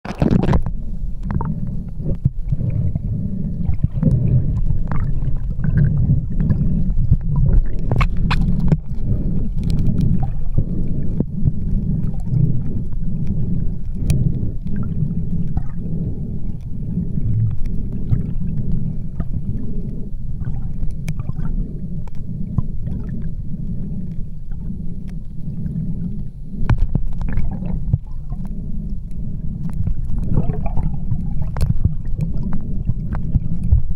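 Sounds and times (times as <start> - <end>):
underwater rumble: 0.0 - 33.9
faint clicks and taps: 26.6 - 28.1.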